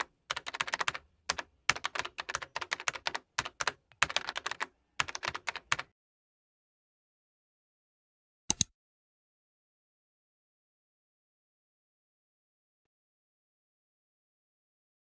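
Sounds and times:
keyboard typing: 0.0 - 5.9.

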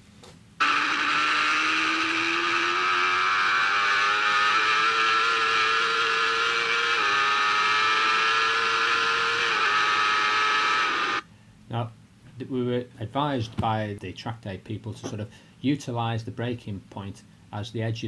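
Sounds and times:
motorcycle engine at full throttle: 0.6 - 11.2.

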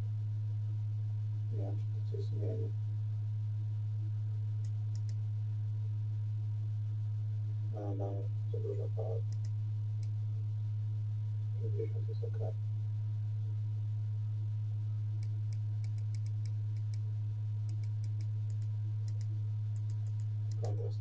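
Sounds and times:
projector humming: 0.0 - 21.0
light ticks: 4.6 - 5.2, 9.3 - 10.2, 17.7 - 20.8.

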